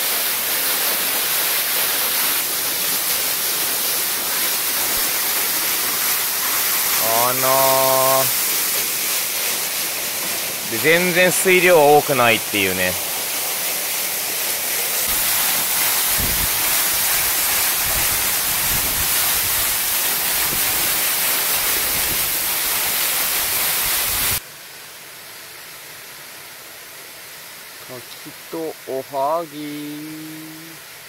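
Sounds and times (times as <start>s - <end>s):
waterfall splashing onto rock: 0.0s - 24.4s.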